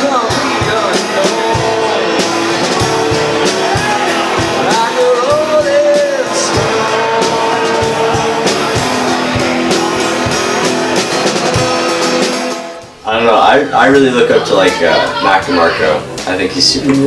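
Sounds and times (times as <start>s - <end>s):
strummed acoustic guitar: 0.0s - 12.9s
drum kit: 0.0s - 17.0s
man singing: 4.6s - 8.5s, 13.7s - 17.0s.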